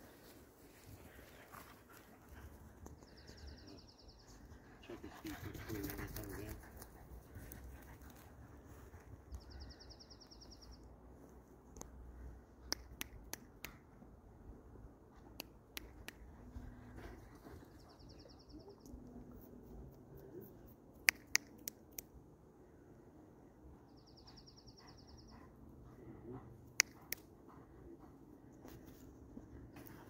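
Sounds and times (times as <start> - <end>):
sharp clicks: 21.0 - 22.1.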